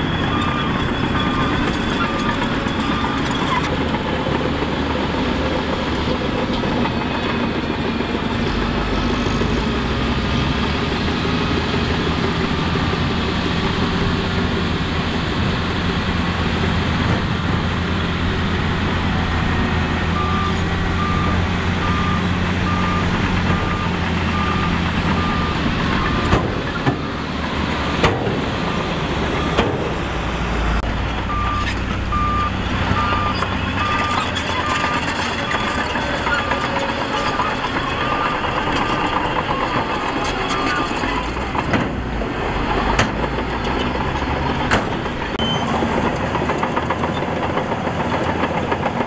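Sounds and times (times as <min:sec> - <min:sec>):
diesel machinery running: 0:00.0 - 0:49.0
reversing alarm beeping: 0:00.1 - 0:03.5, 0:20.2 - 0:26.4, 0:31.3 - 0:41.4, 0:45.4 - 0:45.7.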